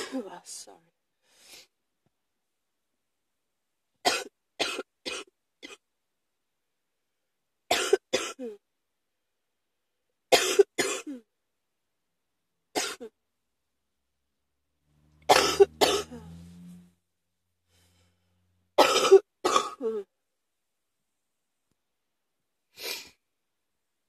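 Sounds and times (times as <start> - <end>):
person coughing: 0.0 - 0.4, 4.1 - 5.8, 7.7 - 8.6, 10.3 - 11.3, 12.8 - 13.2, 15.3 - 16.4, 18.8 - 20.1.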